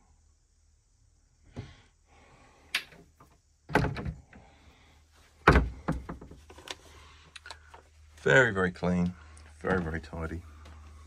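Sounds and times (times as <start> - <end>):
wooden door knocking and thumping: 3.7 - 4.3, 5.4 - 6.4.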